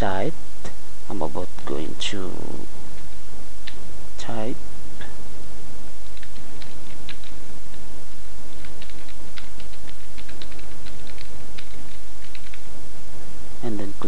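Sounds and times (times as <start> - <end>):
background hiss: 0.0 - 14.0
keyboard keys clicking: 6.0 - 7.4, 8.5 - 12.7.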